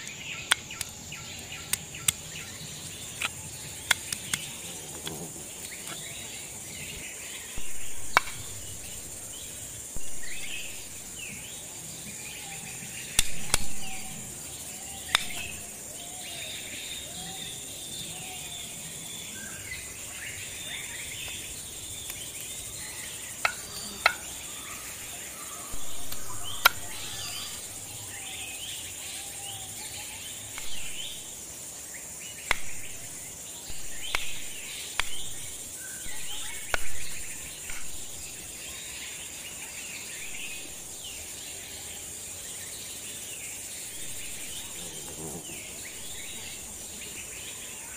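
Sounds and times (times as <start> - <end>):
bird calls: 0.0 - 47.9
insects droning: 0.0 - 47.9.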